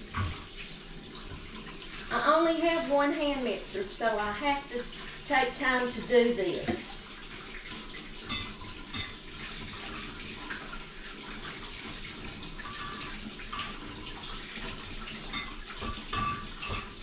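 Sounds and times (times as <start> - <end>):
water running from tap: 0.0 - 17.0
beaters knocking and clinking in sink: 8.2 - 9.4, 12.6 - 17.0.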